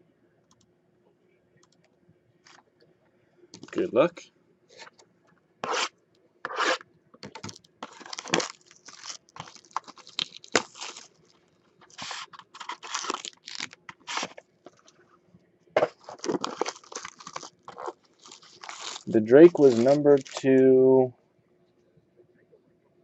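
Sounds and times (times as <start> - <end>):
plastic wrap tearing and crinkling: 7.4 - 15.0, 15.8 - 20.6
cardboard box handled: 15.8 - 20.4.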